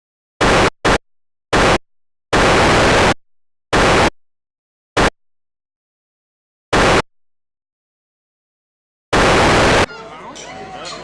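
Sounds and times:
static hiss bursts: 0:00.4 - 0:04.2, 0:05.0 - 0:05.2, 0:06.7 - 0:07.1, 0:09.2 - 0:09.9.

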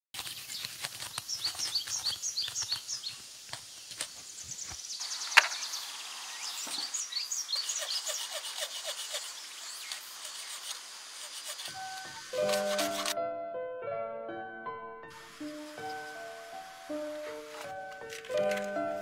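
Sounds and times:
knife scraping dry stalk: 0:00.2 - 0:03.1, 0:07.5 - 0:13.2
small birds chirping: 0:00.3 - 0:12.8, 0:15.2 - 0:17.2.

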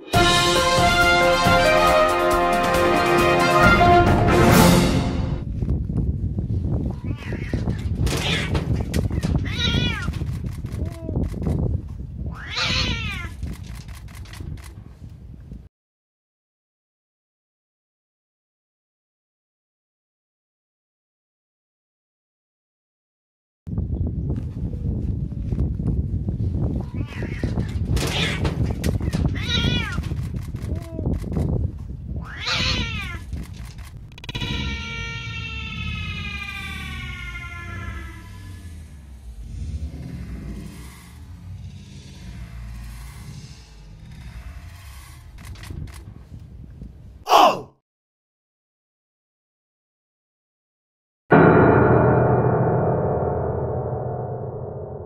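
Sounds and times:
cats yowling in a fight: 0:06.9 - 0:08.6, 0:12.3 - 0:13.3, 0:26.8 - 0:28.4, 0:32.2 - 0:33.2, 0:34.2 - 0:38.9.

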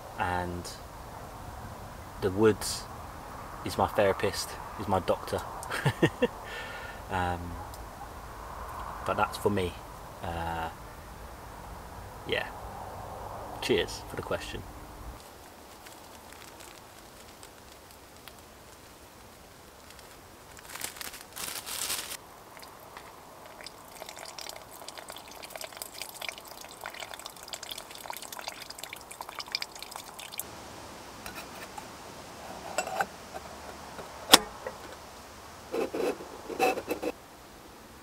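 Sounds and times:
plastic bag crinkling: 0:15.2 - 0:23.1
water running from tap into mug: 0:23.5 - 0:30.4.

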